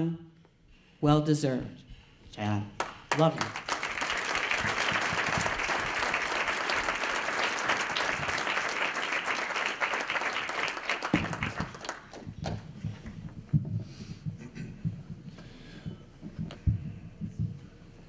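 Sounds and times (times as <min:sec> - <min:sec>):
audience applauding: 0:02.8 - 0:12.3.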